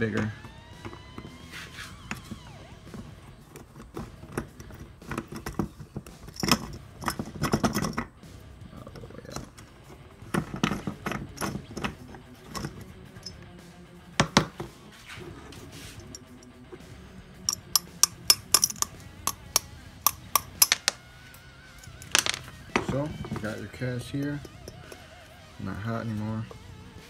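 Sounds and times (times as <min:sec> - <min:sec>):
clicks scrapes and knocks of parts: 0:03.5 - 0:08.1, 0:09.0 - 0:13.4, 0:17.5 - 0:21.0.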